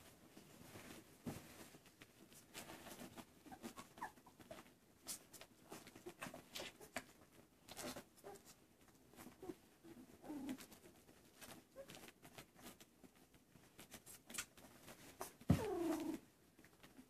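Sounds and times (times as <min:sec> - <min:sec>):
small clicks of puppies feeding: 0:01.9 - 0:17.0
puppies squeaking and grunting: 0:02.8 - 0:12.8, 0:15.1 - 0:16.2.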